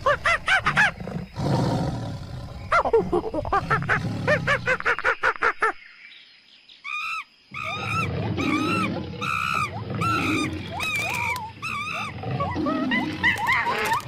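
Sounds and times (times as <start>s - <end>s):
high-pitched arching animal calls: 6.8s - 14.0s.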